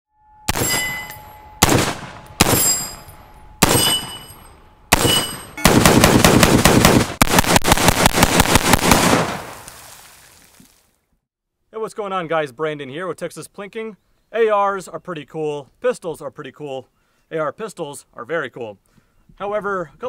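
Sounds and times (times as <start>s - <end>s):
rifle single shots: 0.5s - 3.0s, 3.6s - 4.3s, 4.9s - 9.8s
rapid gunfire: 1.6s - 2.6s, 4.9s - 9.6s.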